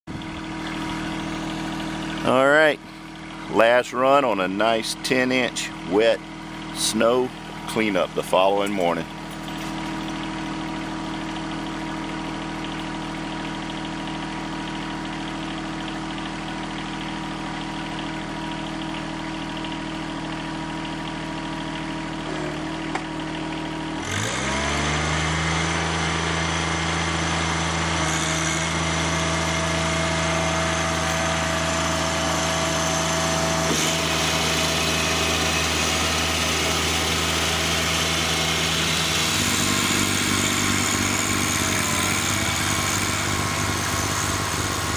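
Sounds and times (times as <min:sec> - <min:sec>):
tractor diesel engine revving: 0:00.1 - 0:44.9.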